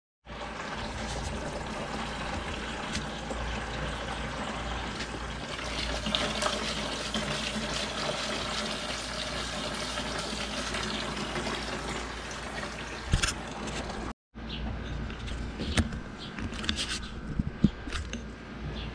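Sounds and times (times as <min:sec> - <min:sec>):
hose water pouring into cooler: 0:00.3 - 0:14.1.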